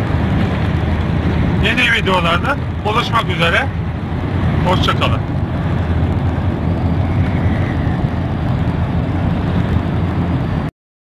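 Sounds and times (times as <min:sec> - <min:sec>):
car engine and tyre noise: 0:00.0 - 0:10.7.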